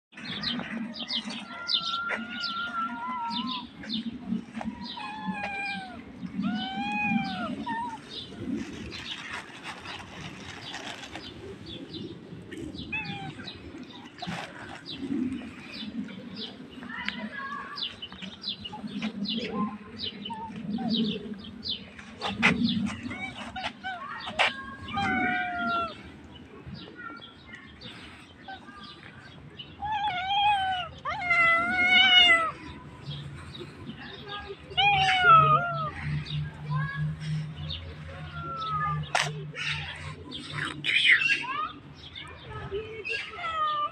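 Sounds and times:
small birds chirping: 0:00.1 - 0:43.9
cat meowing: 0:34.8 - 0:36.0.

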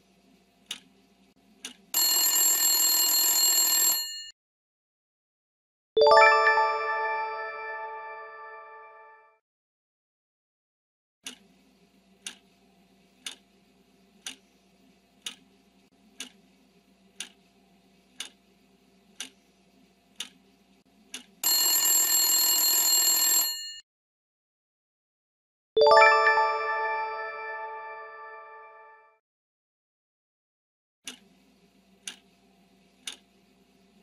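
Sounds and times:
bell chime: 0:06.0 - 0:09.1, 0:25.8 - 0:28.9.

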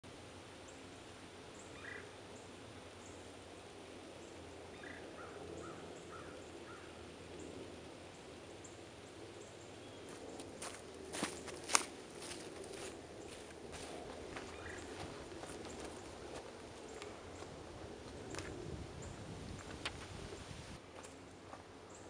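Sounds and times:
low steady hum: 0:00.0 - 0:22.0
woodland ambience: 0:00.1 - 0:22.0
distant bird calls: 0:00.6 - 0:19.7
footsteps on snowy dry leaves: 0:10.1 - 0:18.2.

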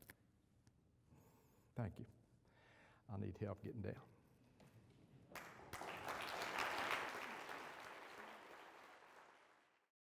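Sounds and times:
audience applauding: 0:05.4 - 0:09.9.

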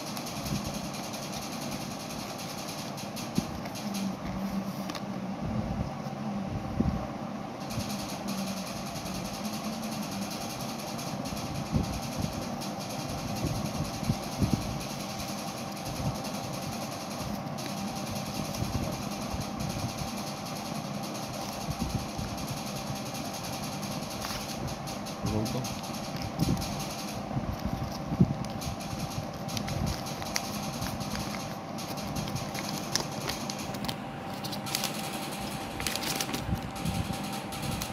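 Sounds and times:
steady background hum: 0:00.0 - 0:37.9
paper leaflet crinkling: 0:25.7 - 0:37.9
hands rustling a pouch: 0:29.2 - 0:37.9.

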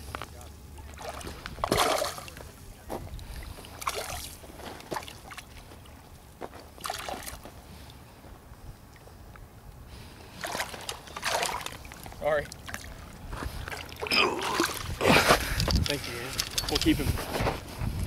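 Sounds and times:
fish splashing in water: 0:01.0 - 0:02.4, 0:03.8 - 0:05.5, 0:06.8 - 0:07.4, 0:10.4 - 0:15.0.

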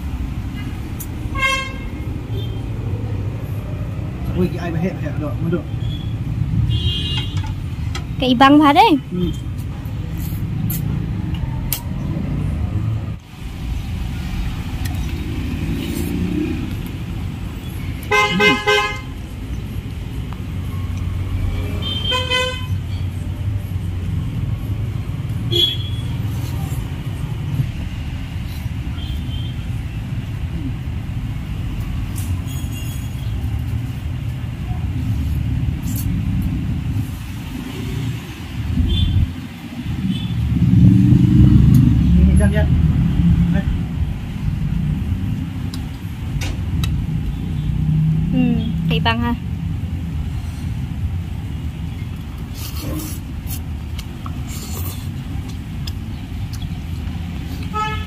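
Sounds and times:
road traffic rumble: 0:00.0 - 0:58.0
car horn tooting: 0:01.4 - 0:01.9, 0:18.1 - 0:19.1, 0:57.7 - 0:58.0.

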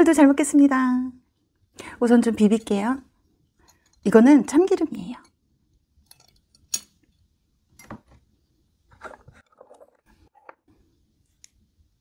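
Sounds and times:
metal spoon clinking on bowl: 0:06.0 - 0:07.0.

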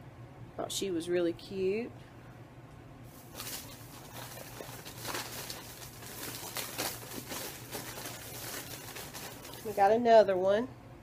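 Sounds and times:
packaging rustling: 0:03.1 - 0:10.0.

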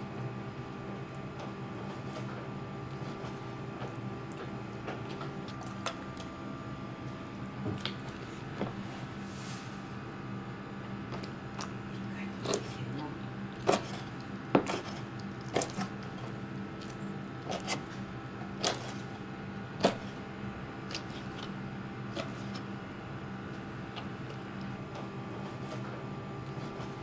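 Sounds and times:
steady low hum: 0:00.0 - 0:27.0
knife chopping on plastic board: 0:13.6 - 0:15.9.

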